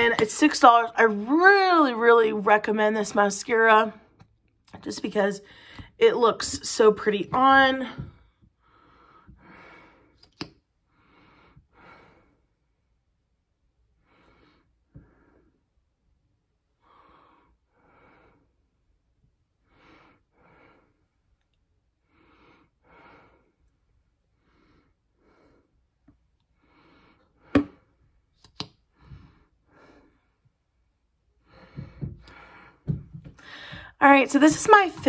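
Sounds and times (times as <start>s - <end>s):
person breathing: 5.4s - 6.0s, 8.4s - 10.3s, 10.9s - 12.6s, 26.5s - 28.0s, 31.4s - 34.0s.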